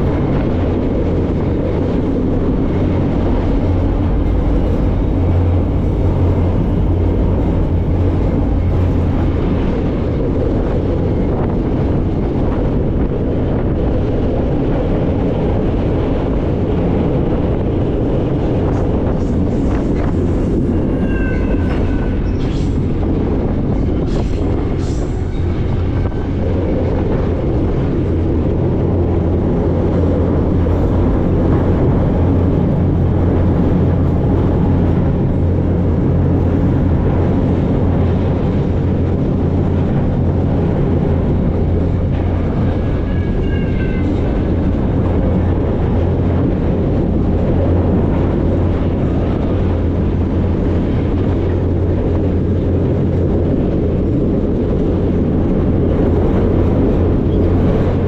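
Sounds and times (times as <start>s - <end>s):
freight train rumbling: 0.0s - 58.0s
faint high squeal: 20.7s - 22.8s.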